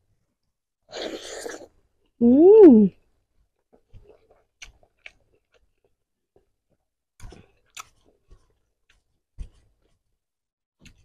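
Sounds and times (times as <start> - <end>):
person chewing food: 3.6 - 10.0.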